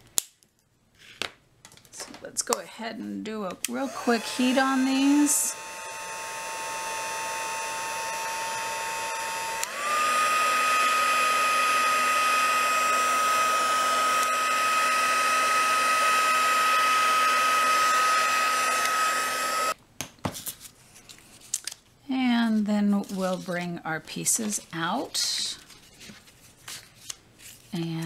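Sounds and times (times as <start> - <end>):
heat tool blowing: 3.6 - 19.8.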